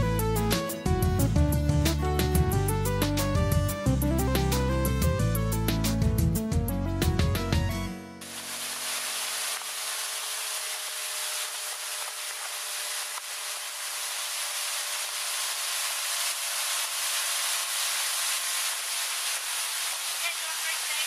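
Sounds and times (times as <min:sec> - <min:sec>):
background music: 0:00.0 - 0:08.3
churning wake water: 0:08.2 - 0:21.0.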